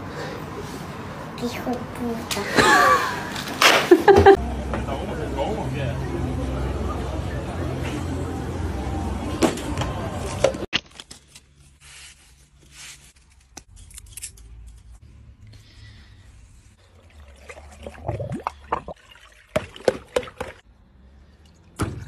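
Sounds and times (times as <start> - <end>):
water trickling into a balloon: 16.8 - 20.4.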